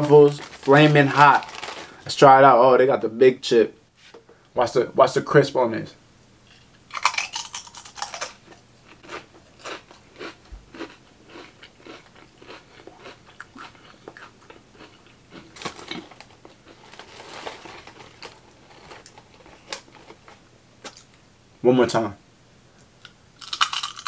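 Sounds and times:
chewing crunchy chips: 0:00.3 - 0:01.9, 0:06.9 - 0:21.2, 0:23.0 - 0:24.0.

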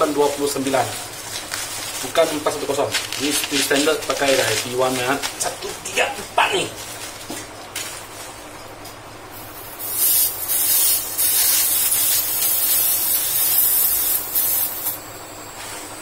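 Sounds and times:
gas hissing from nozzle: 0:09.4 - 0:15.0.

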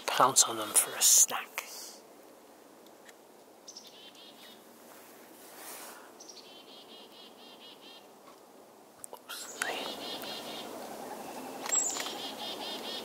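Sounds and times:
owl trilling calls: 0:03.7 - 0:04.6, 0:06.2 - 0:08.1, 0:09.4 - 0:13.0.

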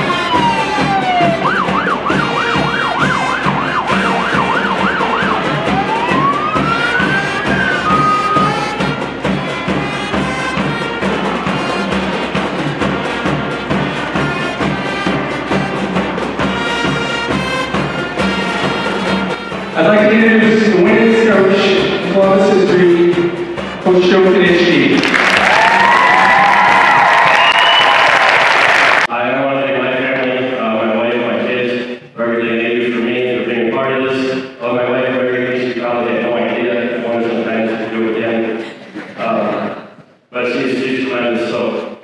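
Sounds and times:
electronic siren: 0:00.0 - 0:09.0
background music with beat: 0:00.0 - 0:24.9.

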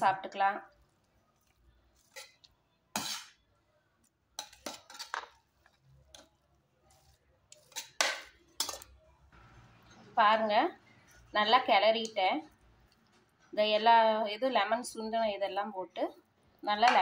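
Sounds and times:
metal spoon scraping a pot: 0:01.4 - 0:03.5, 0:04.4 - 0:09.0.

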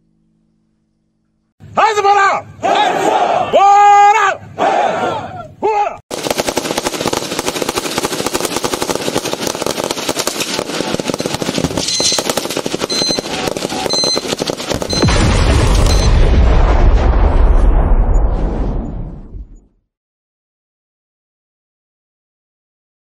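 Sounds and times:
rapid automatic gunfire: 0:06.1 - 0:16.1
deep explosion booming: 0:14.6 - 0:19.8.

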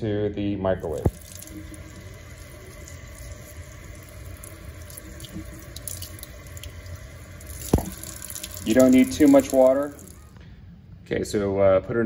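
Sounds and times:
faucet water splashing: 0:00.8 - 0:10.4.

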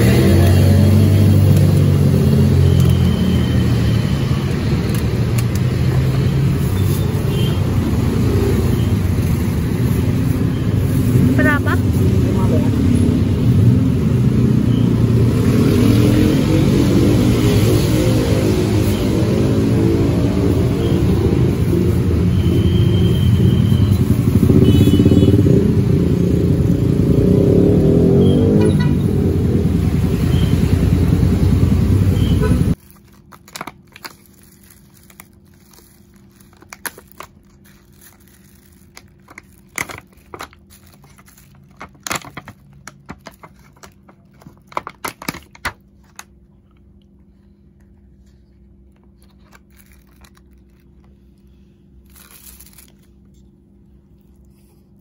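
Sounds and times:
street traffic: 0:00.0 - 0:55.0
plastic bag crinkling: 0:32.7 - 0:46.4, 0:48.6 - 0:53.5.

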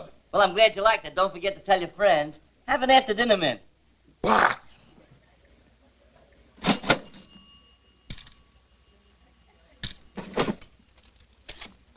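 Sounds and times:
sharp metallic clinks: 0:06.6 - 0:08.6
faint ringing tone: 0:06.7 - 0:10.2.

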